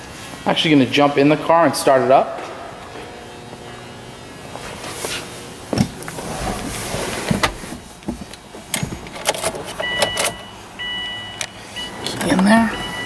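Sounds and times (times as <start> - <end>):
clicks and knocks in a car seat: 7.2 - 9.3
car warning chime beeping: 9.8 - 13.0.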